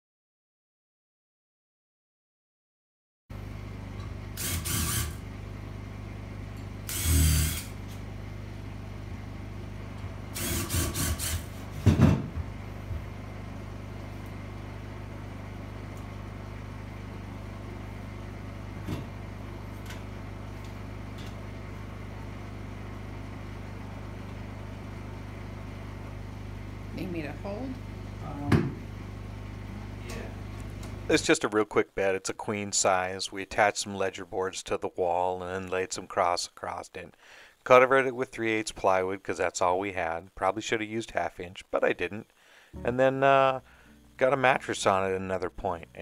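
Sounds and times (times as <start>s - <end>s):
steady low hum: 3.4s - 34.5s, 35.4s - 46.0s
cordless drill driving screws: 4.4s - 5.2s, 6.9s - 7.8s, 10.3s - 11.6s.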